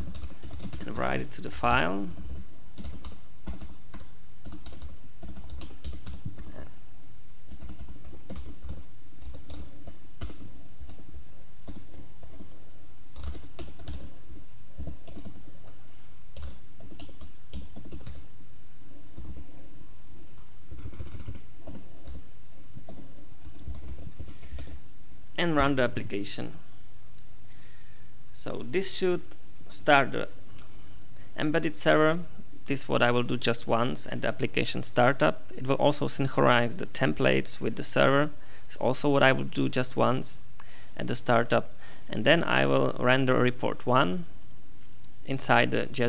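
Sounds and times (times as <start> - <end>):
typing on computer keyboard: 0.0 - 0.9, 2.1 - 6.5, 7.5 - 11.0, 11.6 - 12.5, 13.1 - 14.2, 14.8 - 15.8, 16.4 - 18.2, 20.7 - 22.2, 22.8 - 24.8.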